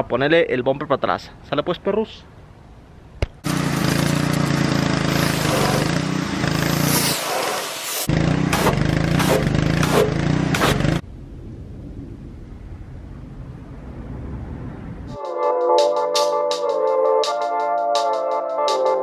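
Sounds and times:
pressure washer spray: 0:03.5 - 0:10.9.

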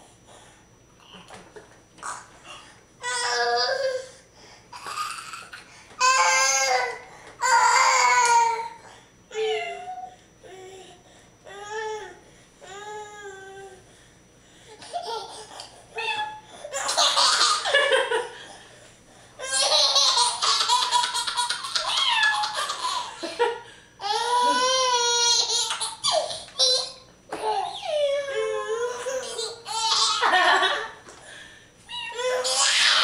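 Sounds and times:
baby laughing: 0:16.7 - 0:17.8, 0:19.4 - 0:23.3, 0:24.1 - 0:27.9.

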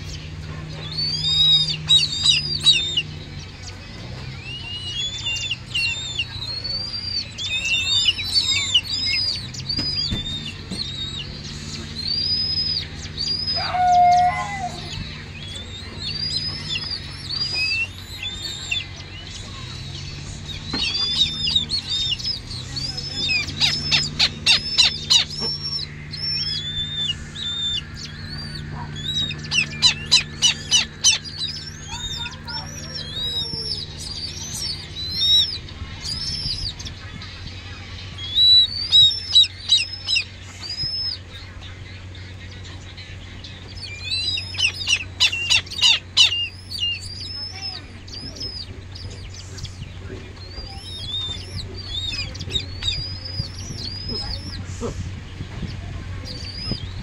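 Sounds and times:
ticking calls: 0:00.0 - 0:54.6
chick begging chirps: 0:00.0 - 0:55.0
electric fan hum: 0:00.0 - 0:57.0.

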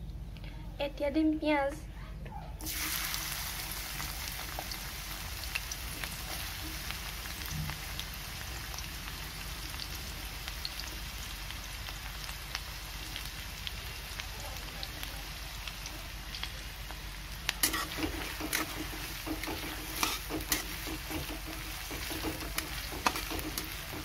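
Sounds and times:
onions sizzling in hot oil: 0:02.6 - 0:24.0
oil crackling: 0:09.8 - 0:24.0.

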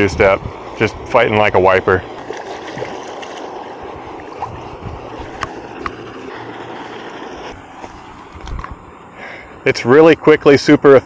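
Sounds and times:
water splashing from thrashing fish: 0:02.1 - 0:07.5.

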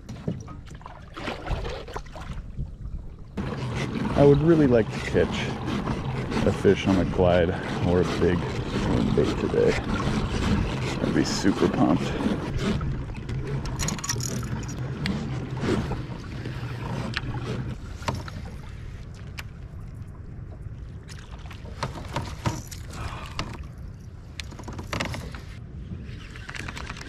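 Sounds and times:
water lapping around kayak hull: 0:00.0 - 0:27.0
gear knocking against kayak: 0:03.4 - 0:18.5.

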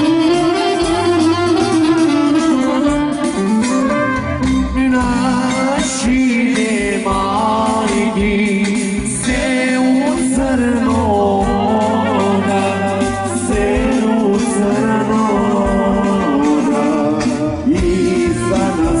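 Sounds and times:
folk song with instruments: 0:00.0 - 0:19.0.

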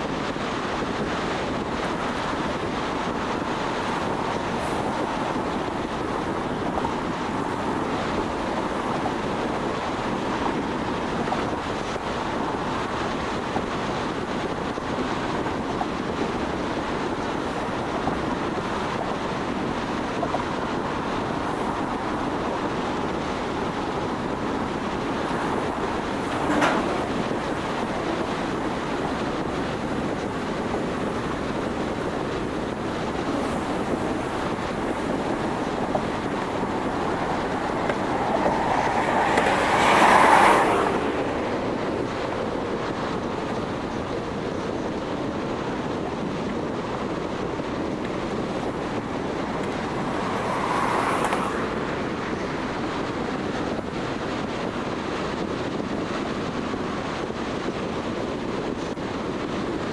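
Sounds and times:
tyres on pavement: 0:00.0 - 0:57.3
wind rushing past: 0:00.0 - 0:59.9.

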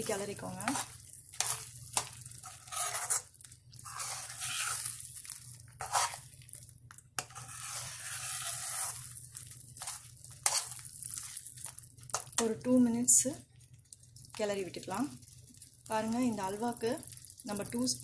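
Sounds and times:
spoon scraping pan: 0:00.0 - 0:06.4, 0:07.2 - 0:09.1, 0:09.8 - 0:12.4
ghee sizzling: 0:00.0 - 0:18.0.

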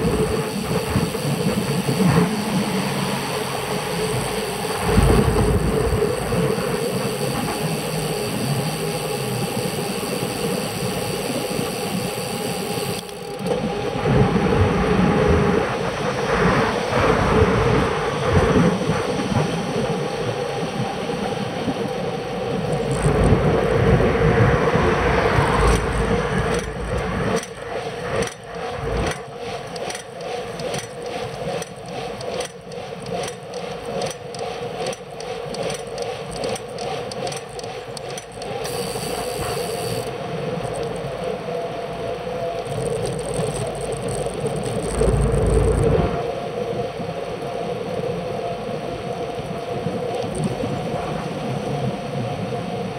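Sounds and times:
steady hum: 0:00.0 - 0:52.7
wind and road noise: 0:00.0 - 0:52.9
irregular clicks and knocks: 0:29.0 - 0:38.8.

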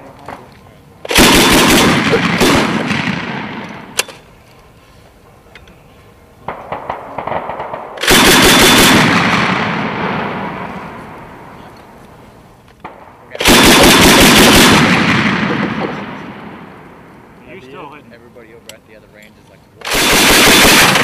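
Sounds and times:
faint sharp gunshots: 0:01.1 - 0:04.0, 0:06.4 - 0:11.5, 0:12.8 - 0:17.0, 0:19.9 - 0:21.0
grenade launcher bursts echoing: 0:01.1 - 0:04.0, 0:06.5 - 0:11.0, 0:12.8 - 0:17.0, 0:19.9 - 0:21.0.

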